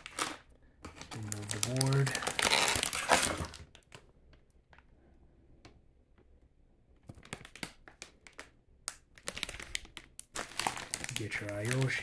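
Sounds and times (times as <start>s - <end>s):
clicks and taps of packaging: 7.0s - 12.0s.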